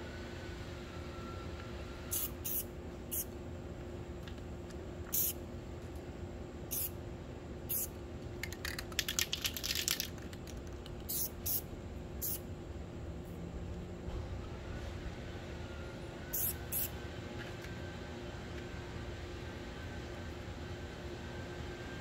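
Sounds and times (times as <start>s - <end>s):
spray can puffs: 2.1s - 3.2s, 5.1s - 5.4s, 6.7s - 6.9s, 7.7s - 11.6s, 12.2s - 12.4s, 16.4s - 16.9s.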